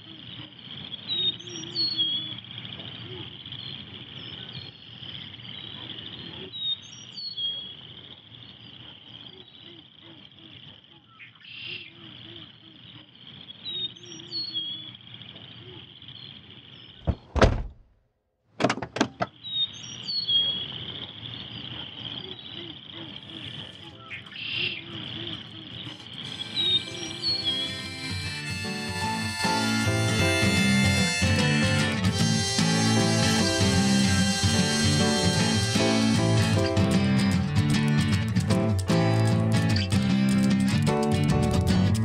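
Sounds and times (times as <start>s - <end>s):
sharp knocks: 17.0s - 17.8s
insect drone: 20.7s - 37.5s
low repeated calls: 22.2s - 38.0s
short bird chirps: 23.3s - 28.1s.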